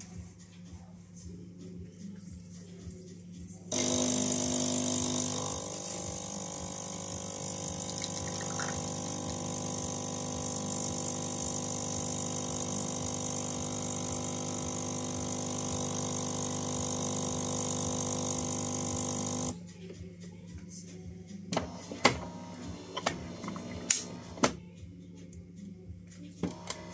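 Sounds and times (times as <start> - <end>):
espresso machine pump humming: 3.7 - 19.6, 21.6 - 24.5, 26.4 - 26.9
espresso pouring into glass: 3.7 - 19.6.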